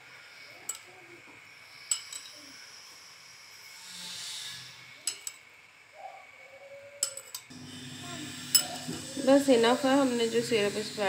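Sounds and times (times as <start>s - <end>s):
spoon clinking against ceramic bowl: 1.9s - 2.3s, 7.0s - 7.5s, 8.5s - 9.0s.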